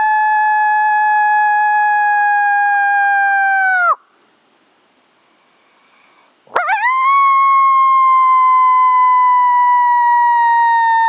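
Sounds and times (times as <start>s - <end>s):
coyote howl mouth call: 6.5s - 11.0s.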